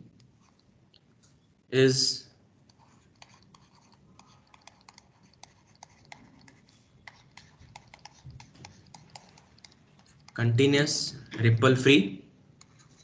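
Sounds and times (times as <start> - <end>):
stylus clicking and scratching: 0.1 - 0.7, 2.6 - 10.5, 12.6 - 13.0.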